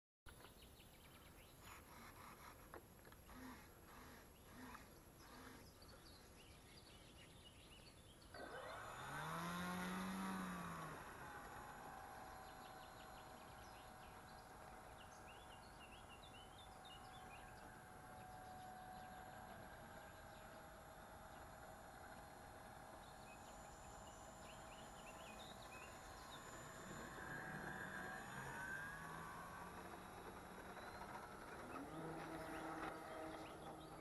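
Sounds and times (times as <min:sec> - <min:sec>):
faint bird chirps: 0:00.3 - 0:08.8
model plane motor whine: 0:01.8 - 0:06.8, 0:08.3 - 0:34.0.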